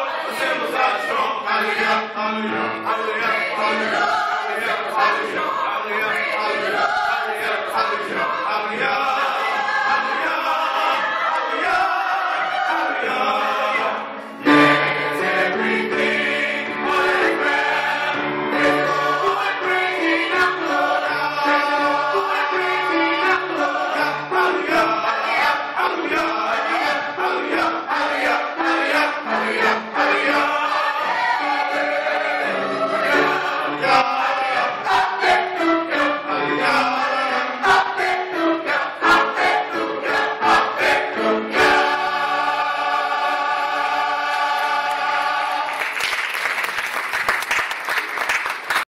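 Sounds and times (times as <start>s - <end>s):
gospel choir singing: 0.0s - 46.5s
applause: 45.6s - 48.9s.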